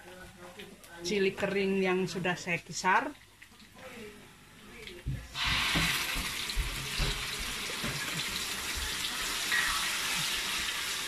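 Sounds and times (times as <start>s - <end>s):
chilli paste sizzling in hot oil: 5.4s - 11.0s.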